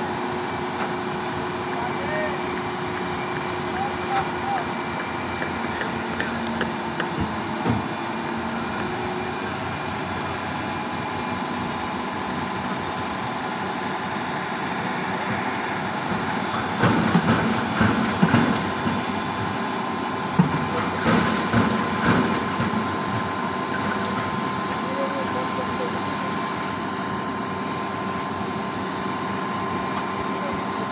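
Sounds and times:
concrete pump humming and whining: 0:00.0 - 0:30.9
loud irregular knocks and clatter: 0:16.6 - 0:19.1.

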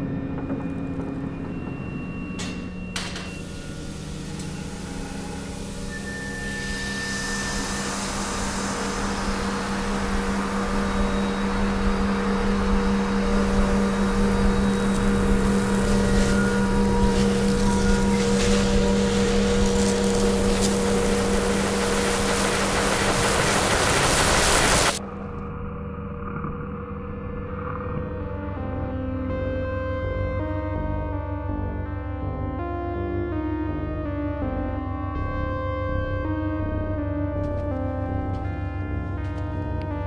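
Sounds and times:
ambient drone music: 0:00.0 - 0:40.0
hiss: 0:03.2 - 0:25.0.

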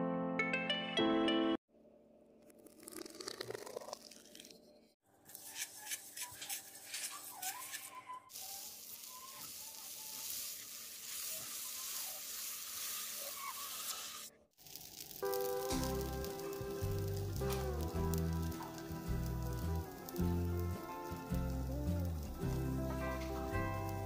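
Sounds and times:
wet batter clicks and scrapes: 0:02.5 - 0:04.6
batter sizzling on hot pan: 0:08.3 - 0:24.0.

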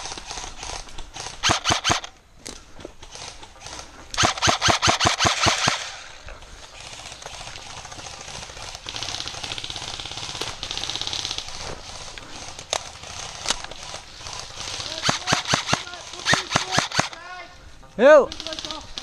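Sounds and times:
airsoft rifle rapid firing: 0:00.4 - 0:02.1, 0:04.2 - 0:06.1, 0:14.4 - 0:17.2, 0:18.3 - 0:19.0.

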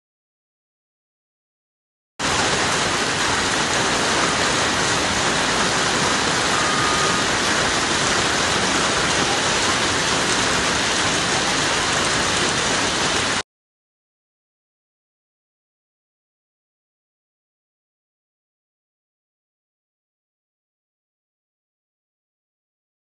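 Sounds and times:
heavy rain pouring: 0:02.2 - 0:13.4.

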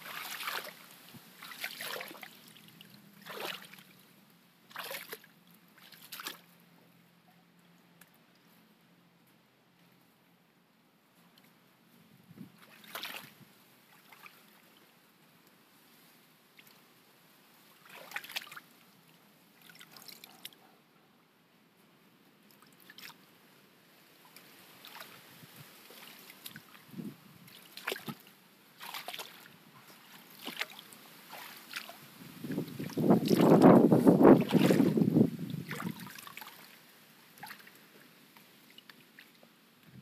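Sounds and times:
water splashing and trickling: 0:00.0 - 0:06.6, 0:12.6 - 0:15.0, 0:17.6 - 0:20.6, 0:22.4 - 0:23.2, 0:24.2 - 0:40.0.

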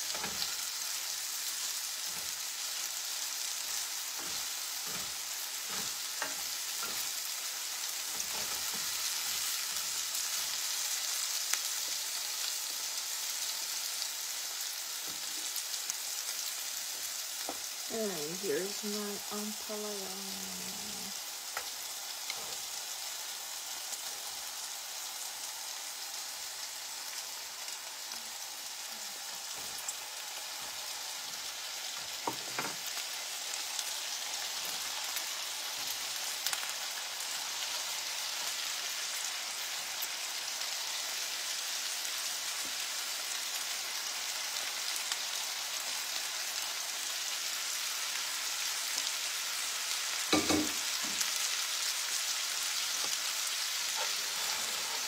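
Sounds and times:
food sizzling in frying pan: 0:00.0 - 0:55.0
knocks in pan: 0:32.2 - 0:32.8, 0:50.3 - 0:51.2.

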